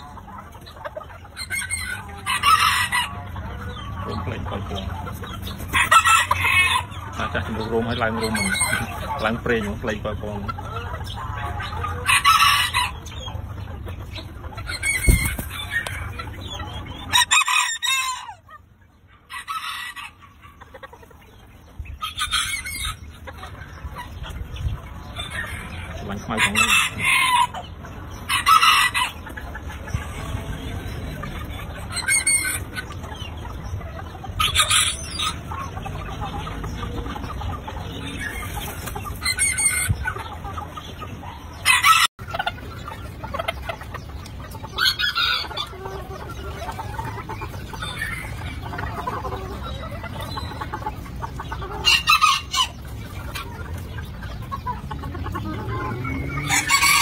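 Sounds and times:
rooster crowing and clucking: 0.9 - 3.8, 5.7 - 7.3, 11.1 - 13.3, 16.7 - 18.6, 25.3 - 31.2, 41.5 - 42.5, 51.7 - 52.9, 55.1 - 57.0.

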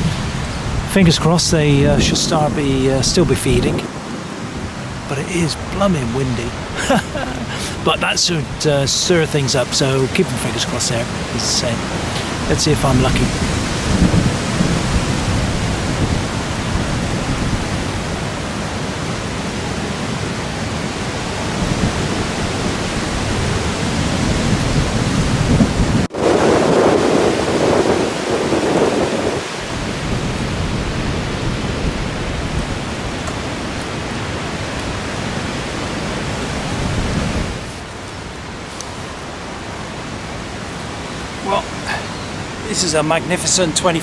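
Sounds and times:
gusty wind buffeting microphone: 0.0 - 44.0.

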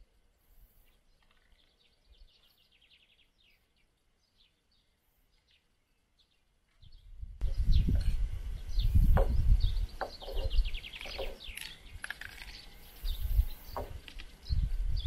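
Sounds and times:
small birds chirping: 0.0 - 15.0
bird trill: 6.2 - 15.0
wind rumble on microphone: 6.8 - 15.0.

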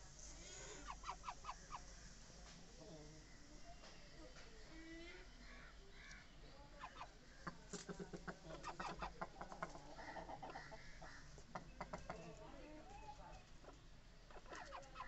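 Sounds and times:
chickens clucking: 0.0 - 5.4, 6.0 - 15.0.

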